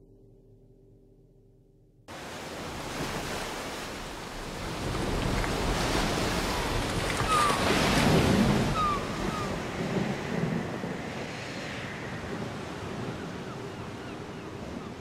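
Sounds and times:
surf breaking on rocks: 2.1s - 11.0s
wind: 2.1s - 15.0s.

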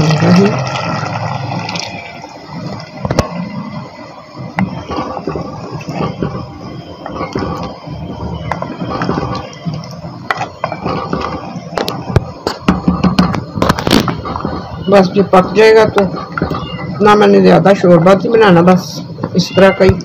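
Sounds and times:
spatula stirring curry in pot: 4.6s - 13.3s.

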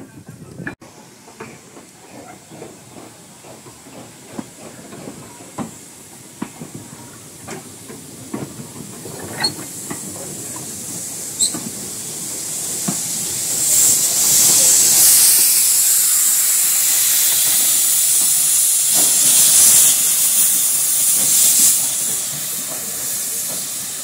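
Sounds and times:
steam locomotive hissing: 0.8s - 24.0s.

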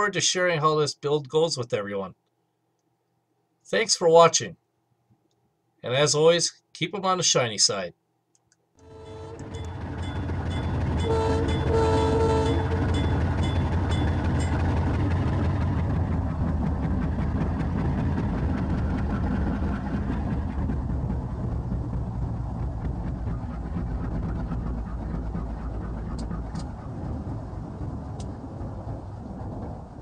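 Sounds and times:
locomotive air horn: 8.8s - 9.7s, 11.0s - 12.9s
diesel locomotive rumbling: 8.8s - 30.0s.

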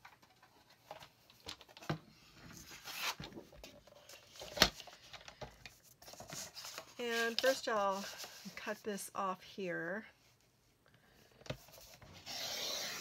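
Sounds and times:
paper rustling and sliding: 5.8s - 8.8s.

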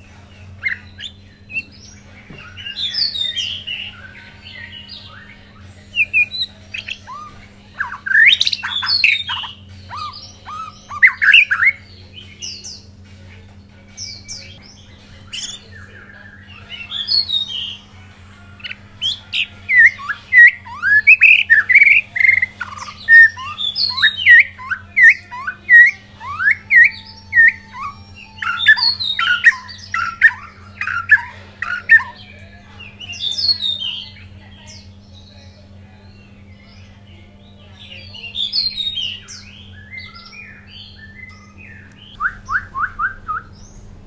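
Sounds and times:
bird singing whistled phrases: 6.0s - 11.8s, 19.0s - 32.3s, 38.3s - 43.8s.

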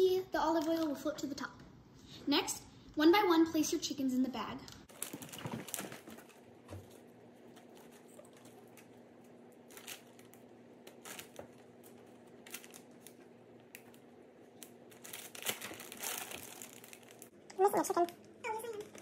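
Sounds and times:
plastic bag rustling: 4.9s - 19.0s.

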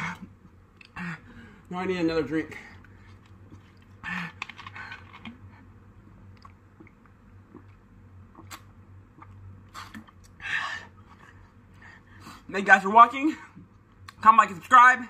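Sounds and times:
person breathing: 1.0s - 1.7s
person gulping and swallowing: 6.2s - 10.4s.

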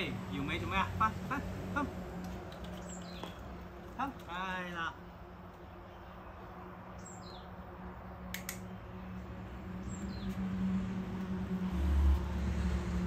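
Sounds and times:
sharp double click: 8.3s - 8.7s.

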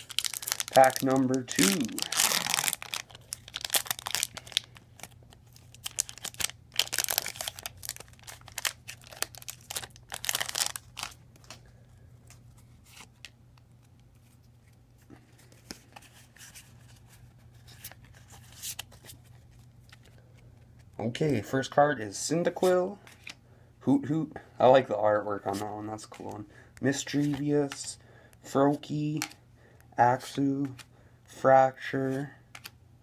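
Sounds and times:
foil wrapper tearing and crinkling: 0.0s - 11.2s
cards rustling: 0.0s - 20.8s, 25.4s - 28.0s, 30.2s - 30.9s.

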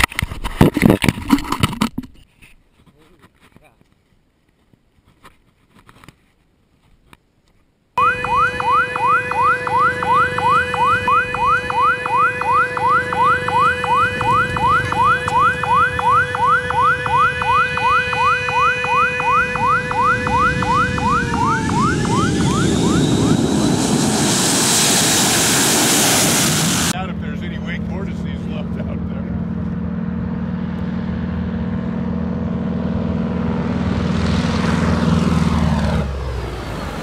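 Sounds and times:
quiet outdoor ambience: 0.0s - 8.0s
jet airliner engines whining: 8.1s - 29.2s.

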